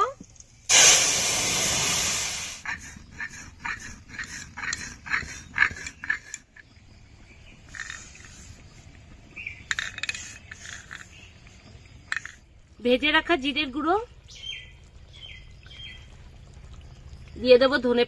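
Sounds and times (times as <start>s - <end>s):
sharp pops and splutters: 14.1s - 17.4s.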